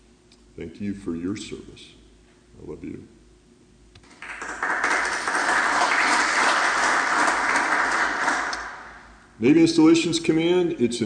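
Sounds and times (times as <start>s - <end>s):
audience applause: 4.1s - 9.0s.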